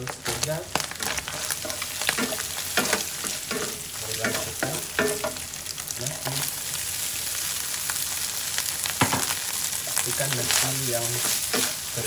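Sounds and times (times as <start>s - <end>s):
spatula scraping and stirring: 0.0s - 5.4s, 9.1s - 12.0s
oil sizzling in a frying pan: 0.0s - 12.0s.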